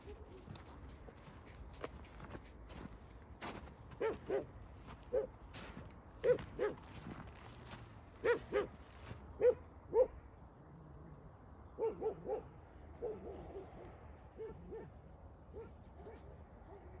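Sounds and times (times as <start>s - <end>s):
dogs barking: 0.0s - 1.4s, 3.9s - 5.4s, 6.2s - 10.2s, 11.8s - 17.0s.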